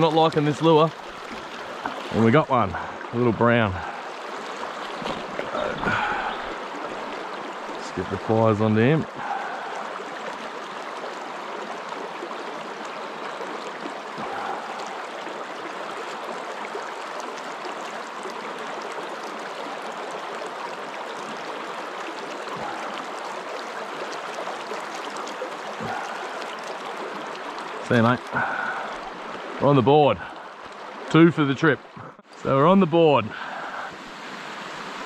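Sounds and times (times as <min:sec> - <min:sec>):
stream running over stones: 0:00.0 - 0:35.0.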